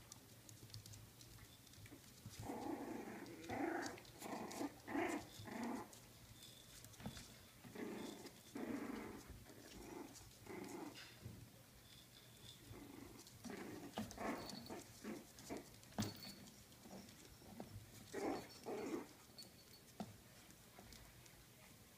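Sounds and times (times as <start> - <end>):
puppies play-growling: 1.9 - 11.3, 12.4 - 19.8.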